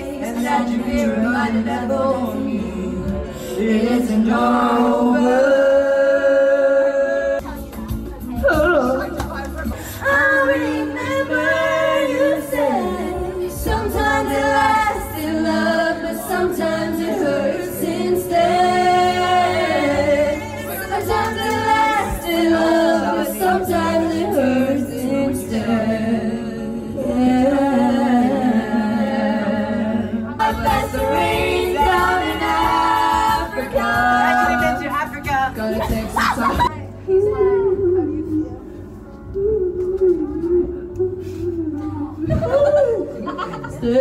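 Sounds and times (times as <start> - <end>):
group of young people singing: 0.0 - 7.6, 8.5 - 36.7.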